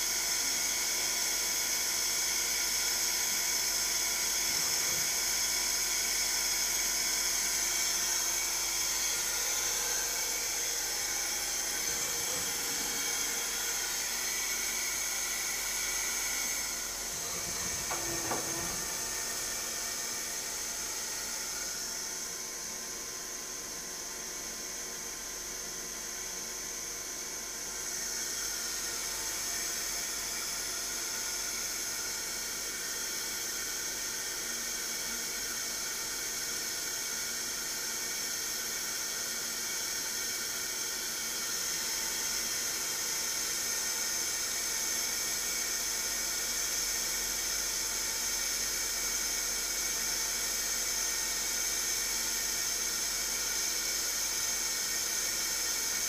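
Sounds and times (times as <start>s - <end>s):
lathe machine whine: 0.1s - 56.0s.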